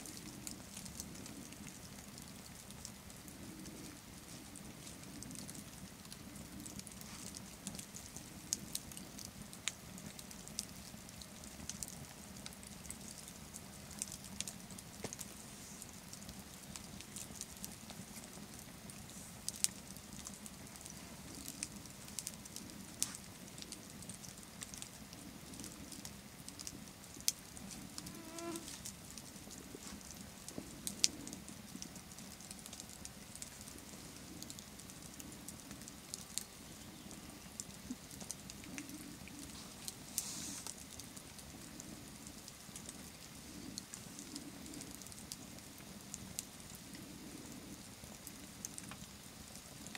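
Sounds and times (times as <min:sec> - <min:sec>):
campfire crackling and popping: 0:00.0 - 0:49.9
hiss of burning embers: 0:00.0 - 0:49.9.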